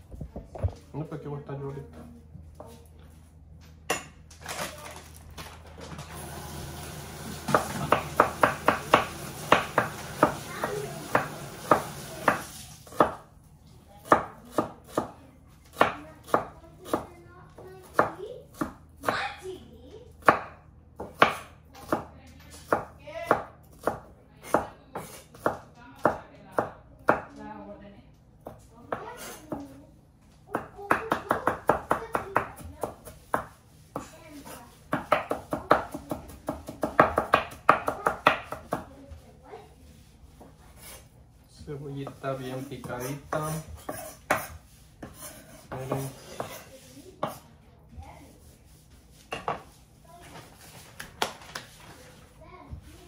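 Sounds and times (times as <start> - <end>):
knife chopping on wooden board: 7.4 - 13.3, 14.0 - 17.1, 17.8 - 19.2, 20.2 - 27.3, 30.5 - 38.9, 42.8 - 47.4.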